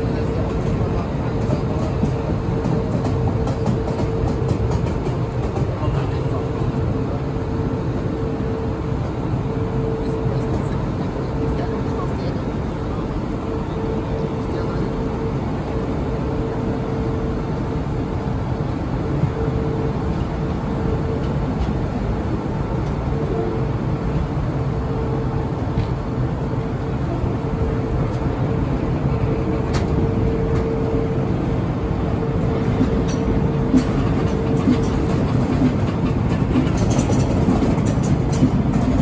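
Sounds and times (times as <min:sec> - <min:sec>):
mid-pitched hum: 0:00.0 - 0:39.0
train wheels rumbling on rails: 0:00.0 - 0:39.0
wheels clicking over track: 0:32.8 - 0:39.0.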